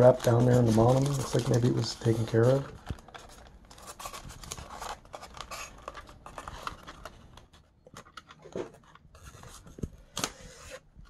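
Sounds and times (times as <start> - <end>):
styrofoam scraping and creaking: 0.0 - 7.1.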